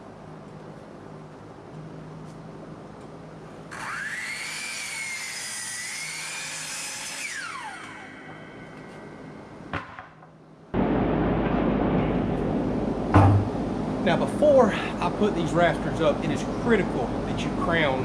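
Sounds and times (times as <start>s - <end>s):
miter saw cutting a board: 3.7s - 9.2s
steady rush of noise: 8.5s - 18.0s.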